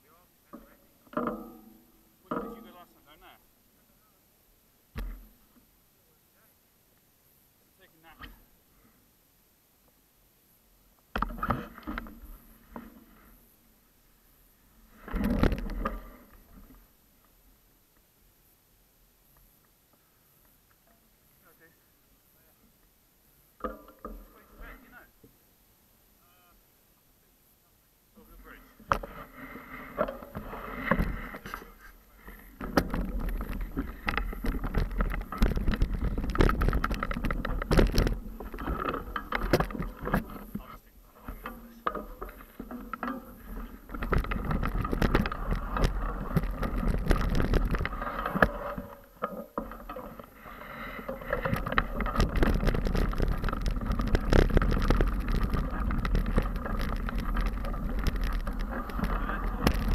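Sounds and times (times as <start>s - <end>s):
bike rattling over bumps: 14.9s - 16.9s, 28.4s - 59.9s
bike tyres crunching over gravel: 28.4s - 59.9s.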